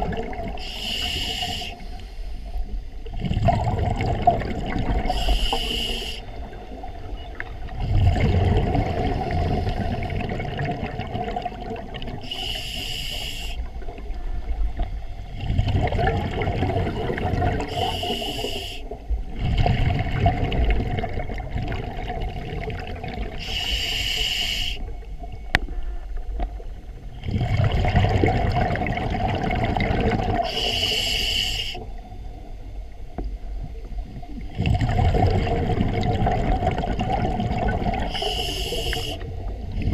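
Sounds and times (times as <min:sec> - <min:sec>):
gurgling exhaled bubbles underwater: 0:00.0 - 0:01.8, 0:03.0 - 0:25.8, 0:26.5 - 0:32.0, 0:33.6 - 0:39.9
diver inhaling through regulator: 0:00.6 - 0:02.6, 0:05.0 - 0:06.3, 0:09.2 - 0:10.2, 0:12.2 - 0:13.7, 0:17.6 - 0:19.0, 0:23.4 - 0:24.9, 0:30.4 - 0:31.9, 0:38.0 - 0:39.4.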